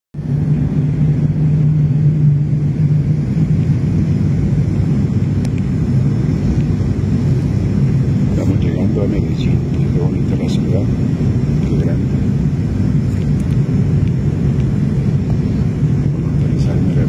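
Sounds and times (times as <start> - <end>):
airliner cabin engine rumble: 0.2 - 17.0.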